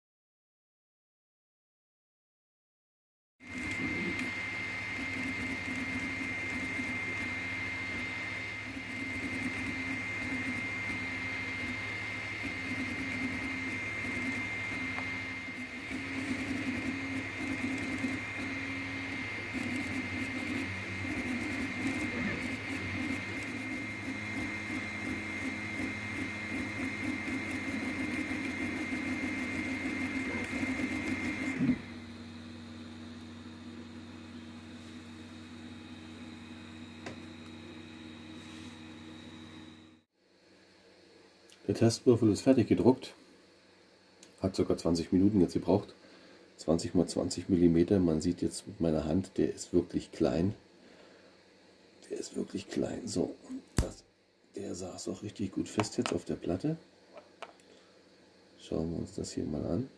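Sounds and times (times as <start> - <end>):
stepper motors buzzing: 3.4 - 40.0
steady high whine: 3.4 - 40.1
fan hum: 3.5 - 59.7.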